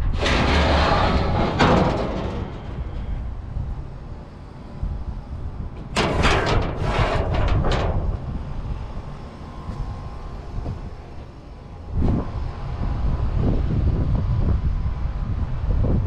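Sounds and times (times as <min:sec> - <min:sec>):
harsh scraping rattle: 0:00.0 - 0:08.9
wind rumble on microphone: 0:00.0 - 0:16.0.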